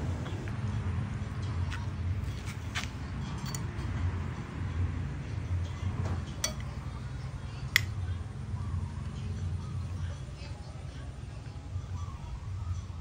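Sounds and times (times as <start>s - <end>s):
low background hum: 0.0s - 13.0s
metal spoon clinking on plate: 3.3s - 3.8s, 6.4s - 6.8s.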